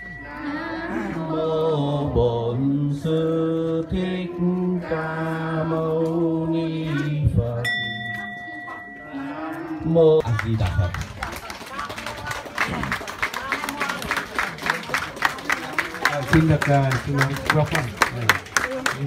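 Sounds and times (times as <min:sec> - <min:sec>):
steady ringing tone: 0:00.0 - 0:01.2, 0:07.6 - 0:10.0.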